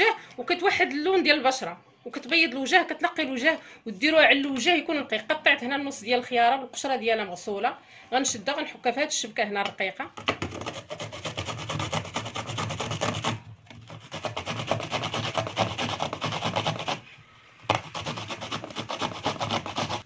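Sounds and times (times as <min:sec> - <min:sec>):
cucumber rasping on a grater: 0:10.5 - 0:17.0, 0:17.7 - 0:20.0.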